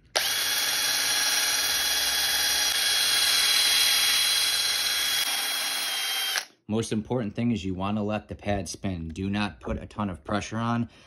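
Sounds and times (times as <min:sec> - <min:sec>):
drill motor whine: 0:00.1 - 0:06.5.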